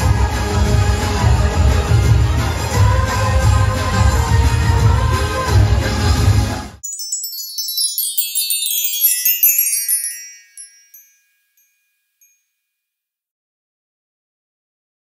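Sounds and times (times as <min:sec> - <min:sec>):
parade music: 0:01.0 - 0:11.1
twinkling chime effect: 0:06.8 - 0:12.6.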